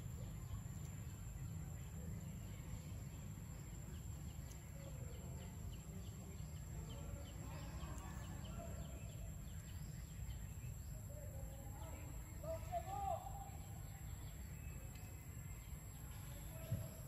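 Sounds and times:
bird chirping: 0.0 - 17.0.

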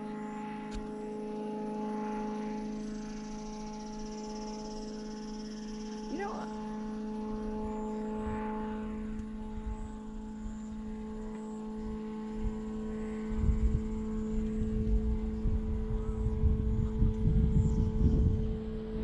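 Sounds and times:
steady low drone: 0.0 - 19.0
wind buffeting microphone: 11.8 - 19.0.

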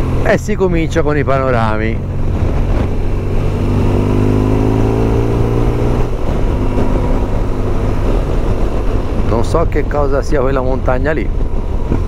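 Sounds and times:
motorcycle engine accelerating: 0.0 - 9.4
wind rush: 0.0 - 12.0.

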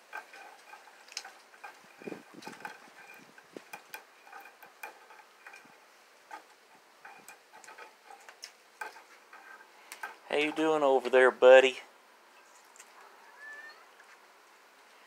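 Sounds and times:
cat claws scratching wood: 0.0 - 11.0.

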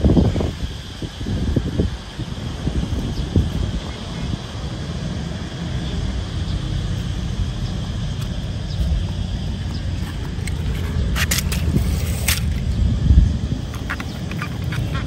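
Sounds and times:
low outdoor rumble: 0.0 - 15.0
grass brushing microphone: 8.1 - 15.0.

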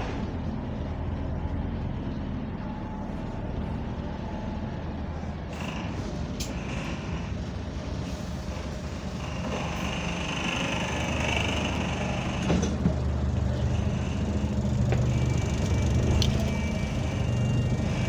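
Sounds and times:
bus engine running: 0.0 - 18.0
air compressor running: 9.1 - 18.0.

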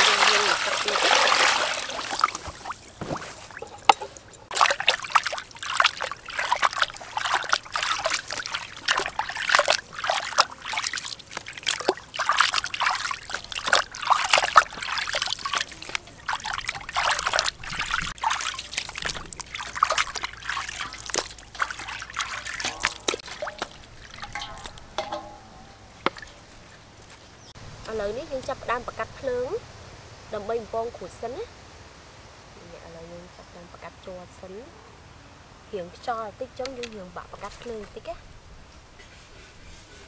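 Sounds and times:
water splashing in steel basin: 0.0 - 27.2.

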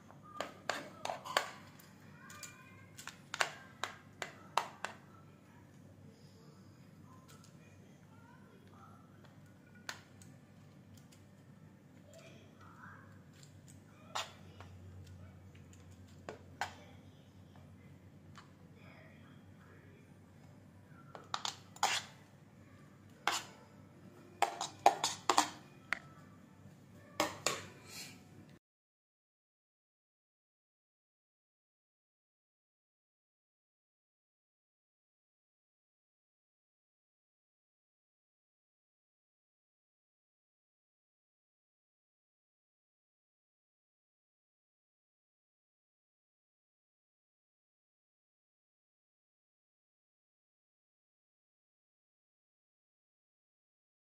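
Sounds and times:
metal spoon clinking on a plate: 24.4 - 25.6.

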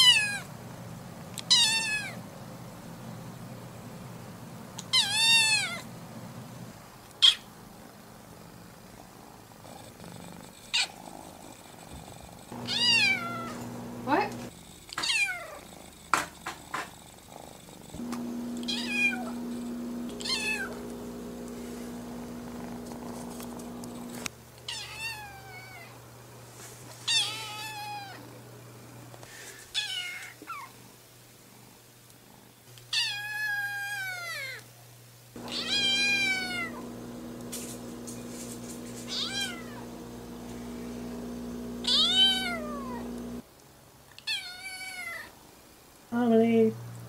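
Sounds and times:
kitten meowing: 12.7 - 13.5, 15.0 - 15.6, 18.7 - 19.3, 20.2 - 20.8, 35.5 - 36.8, 39.1 - 39.8, 41.8 - 43.0.

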